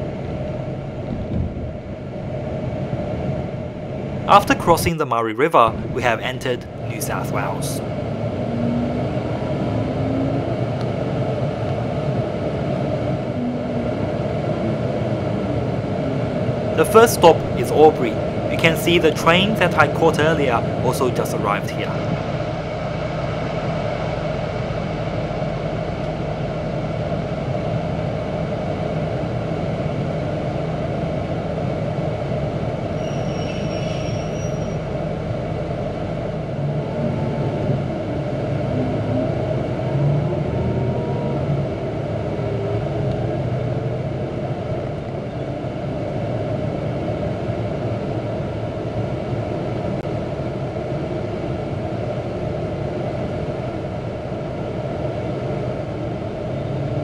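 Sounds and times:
diesel engine running: 0.0s - 33.0s
high-pitched whine: 0.0s - 57.0s.

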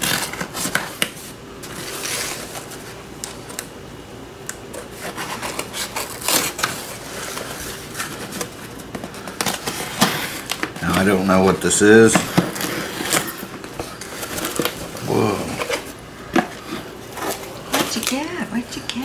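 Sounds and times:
knife cutting packing tape: 0.0s - 1.2s, 4.7s - 11.2s.

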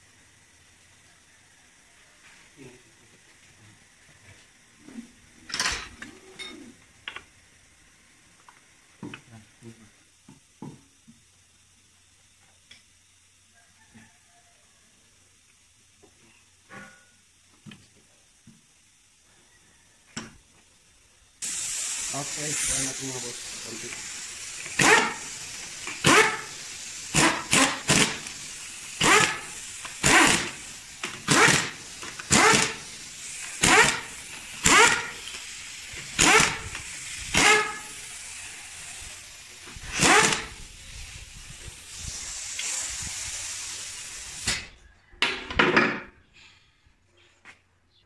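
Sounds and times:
air hissing: 20.0s - 44.8s
pneumatic impact wrench bursts: 21.4s - 44.8s.

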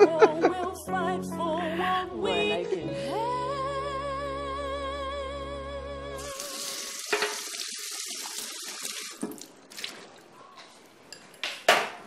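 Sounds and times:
tap running into sink: 7.0s - 7.6s.

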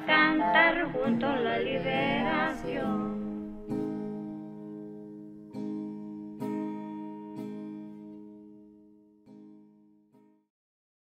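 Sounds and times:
people singing: 0.0s - 3.8s
acoustic guitar strumming: 0.0s - 10.0s.

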